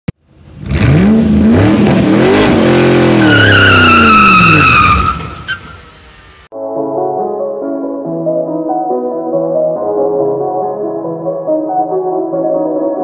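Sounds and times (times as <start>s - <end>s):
car engine revving: 0.3s - 6.5s
tyre squeal: 3.1s - 5.9s
music: 6.5s - 13.0s.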